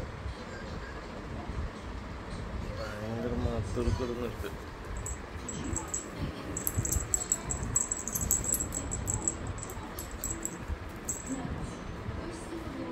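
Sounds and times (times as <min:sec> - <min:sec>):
puppy paws clicking and knocking: 0:05.0 - 0:11.4.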